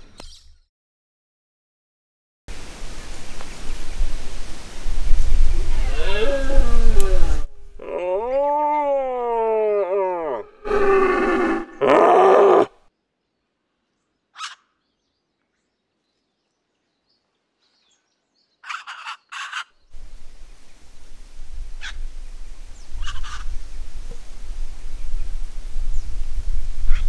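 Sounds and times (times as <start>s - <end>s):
deer roaring: 5.8s - 12.8s
short bird calls: 14.3s - 14.8s, 18.6s - 19.9s.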